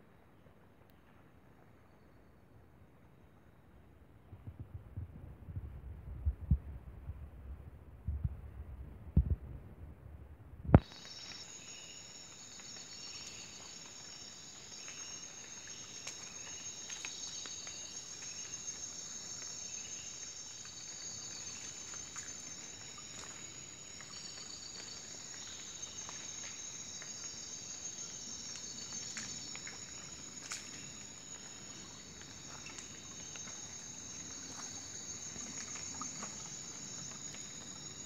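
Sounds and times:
insects trilling: 10.8 - 38.0
water trickling over gravel: 10.8 - 38.0.

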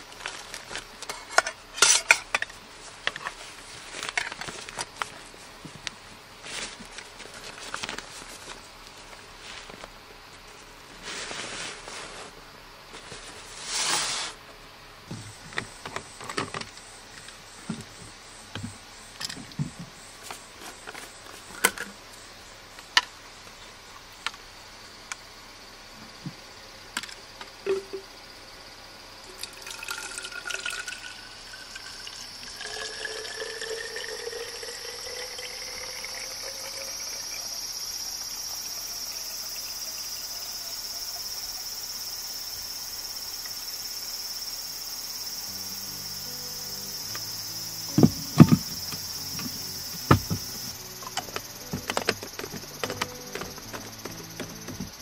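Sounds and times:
water pouring into bottle: 29.3 - 37.4
plastic bottle clicks and knocks: 47.9 - 50.6.

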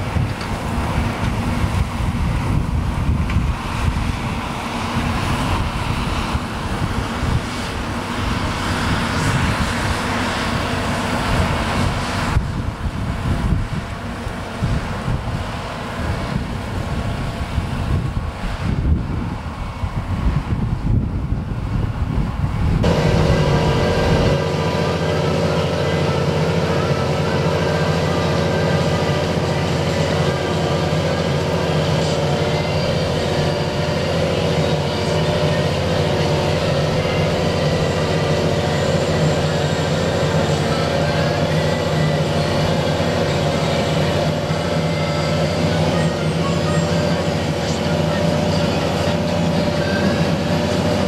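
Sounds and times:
wind noise: 0.0 - 25.2
tractor diesel engine drone: 0.0 - 51.0.

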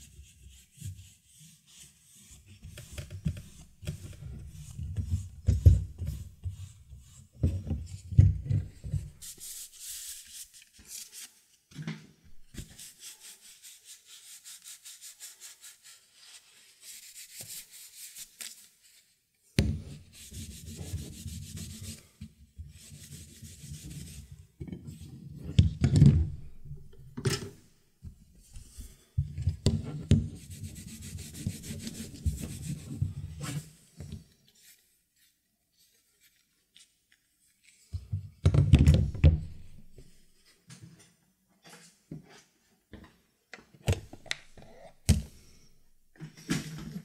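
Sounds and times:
cloth rag rubbing wooden stick: 9.0 - 11.4, 12.5 - 19.0, 19.9 - 22.1, 30.3 - 33.7.

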